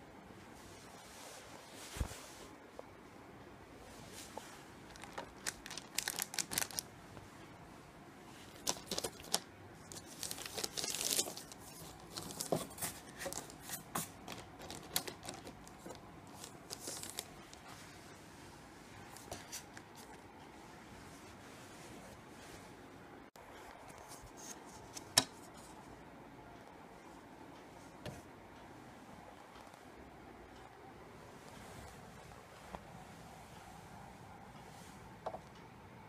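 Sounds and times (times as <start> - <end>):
plastic wrapping crinkling: 4.8 - 6.9, 8.5 - 17.7.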